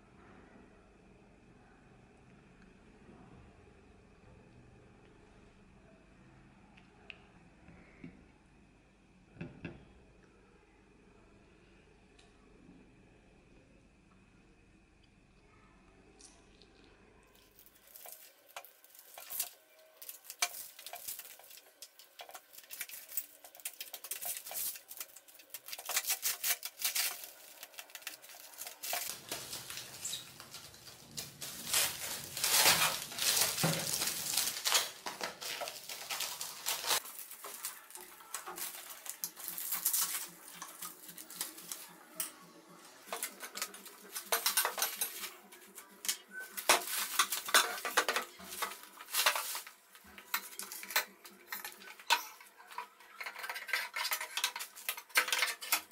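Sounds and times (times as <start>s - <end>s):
plastic wrap crackling and tearing: 17.3s - 42.1s, 43.1s - 55.9s
clicks and knocks of parts: 46.0s - 55.9s.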